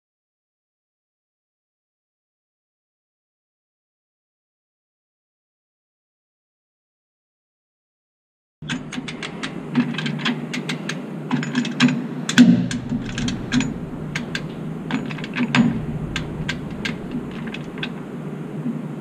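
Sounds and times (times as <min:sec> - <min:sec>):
low steady hum: 0:08.6 - 0:19.0
chain hoist metallic clicks: 0:08.7 - 0:17.9.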